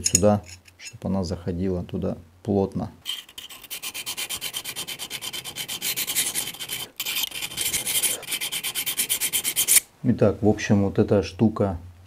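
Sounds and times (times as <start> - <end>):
file rasping on metal: 3.0 - 9.9.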